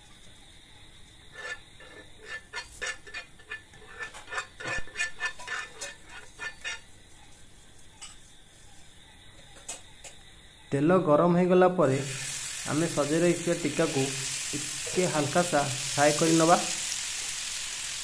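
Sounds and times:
spatula scraping frying pan: 0:01.3 - 0:07.0.

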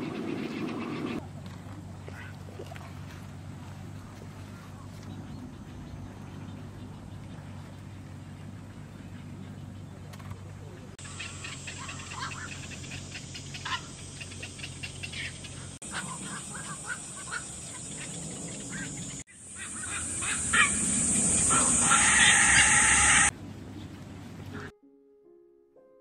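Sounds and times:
birds calling: 0:00.0 - 0:24.7
steady high hiss: 0:11.0 - 0:23.3.

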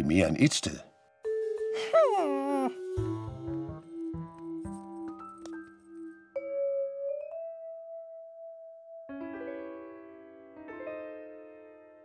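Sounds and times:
cartoon music: 0:01.7 - 0:03.7.

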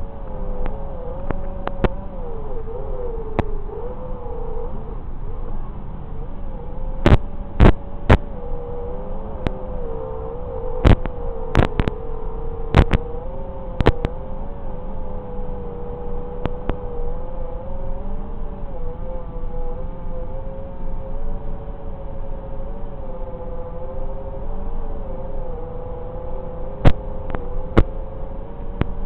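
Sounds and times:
drone motors whining: 0:00.0 - 0:21.7
sharp crackles: 0:07.0 - 0:08.3, 0:10.8 - 0:12.0, 0:12.7 - 0:13.0, 0:13.8 - 0:14.2.

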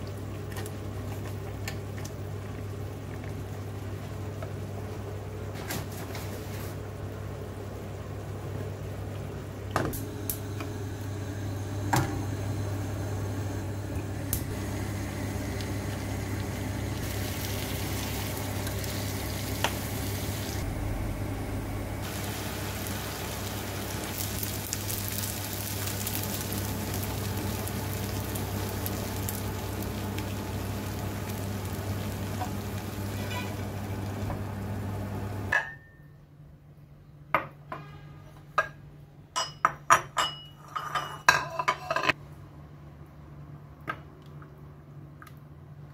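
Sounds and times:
steady low hum: 0:06.8 - 0:35.6
beans sizzling in frying pan: 0:14.1 - 0:20.6, 0:22.0 - 0:35.5.

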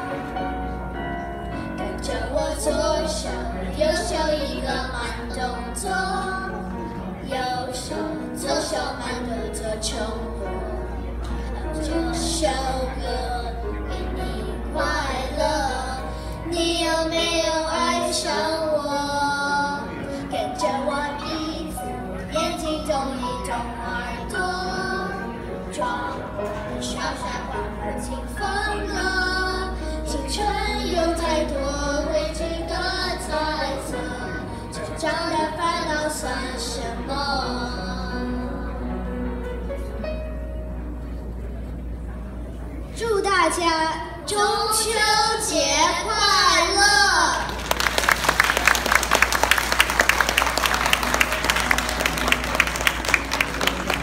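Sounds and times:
musical accompaniment: 0:00.0 - 0:43.1, 0:44.1 - 0:54.0
children singing: 0:01.6 - 0:11.0, 0:11.6 - 0:38.8
audience applauding: 0:47.4 - 0:54.0.

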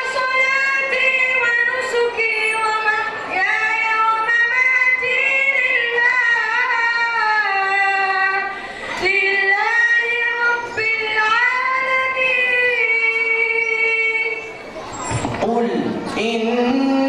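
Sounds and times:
boy chanting into microphone: 0:15.3 - 0:17.0.

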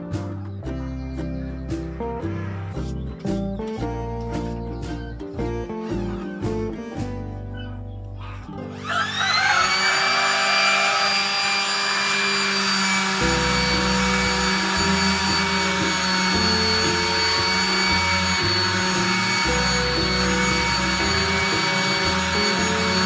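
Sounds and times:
palm sander whining: 0:08.5 - 0:23.0.

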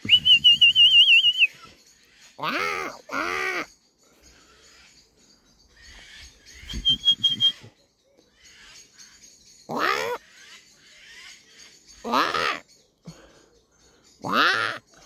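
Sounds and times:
harsh rasping bird calls: 0:00.0 - 0:15.0.

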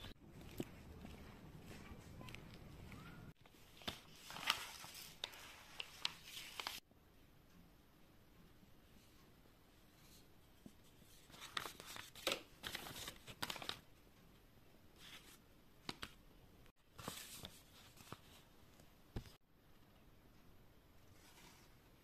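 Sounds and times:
paper cards rustling: 0:00.0 - 0:06.8, 0:11.0 - 0:13.8, 0:16.9 - 0:18.5.

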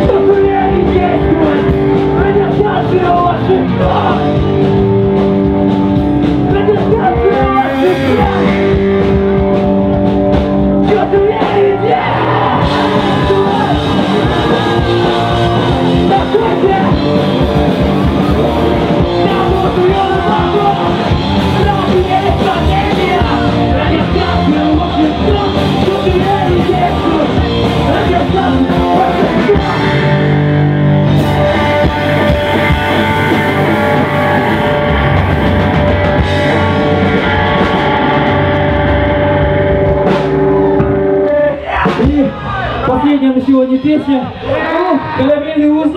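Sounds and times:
person singing: 0:00.0 - 0:04.6, 0:10.8 - 0:17.4, 0:18.0 - 0:30.3
rock band playing: 0:00.0 - 0:45.9.

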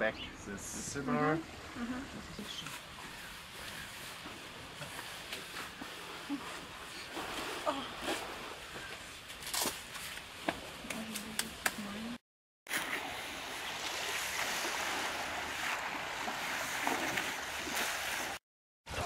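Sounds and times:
wind: 0:00.0 - 0:19.0
small waves at shore: 0:12.7 - 0:19.0.

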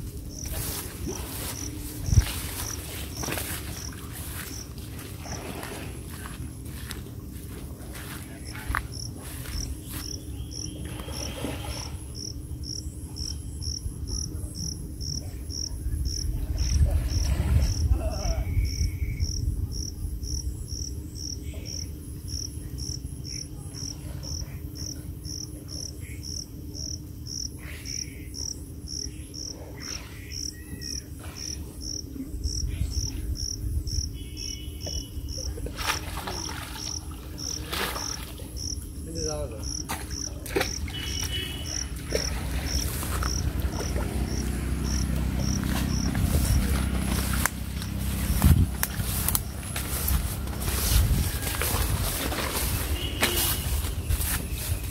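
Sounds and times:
insect chirping: 0:00.1 - 0:54.9
water splashing from fishing net: 0:35.6 - 0:38.6, 0:39.9 - 0:48.3
low rumble: 0:41.9 - 0:53.0.

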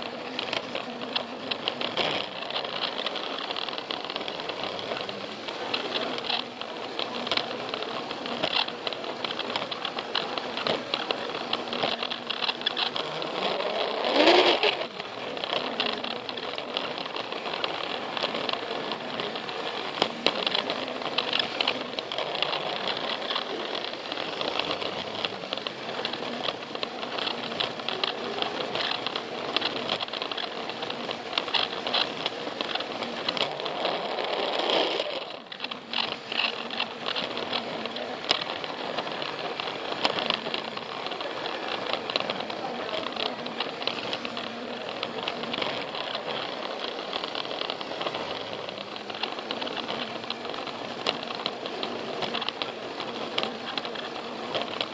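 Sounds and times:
toy train rattling on track: 0:00.0 - 0:54.9.

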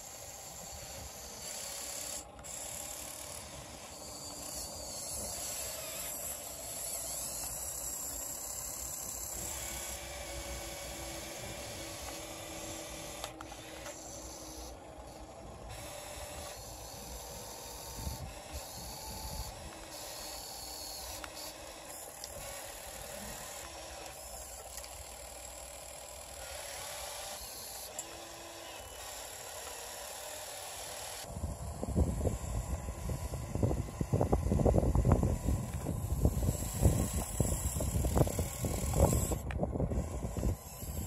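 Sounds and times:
electric motors whining: 0:00.0 - 0:41.0
wind buffeting microphone: 0:31.3 - 0:41.0.

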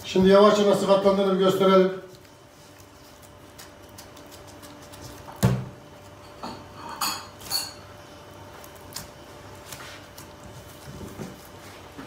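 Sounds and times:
kitchenware clinking: 0:06.2 - 0:07.9.

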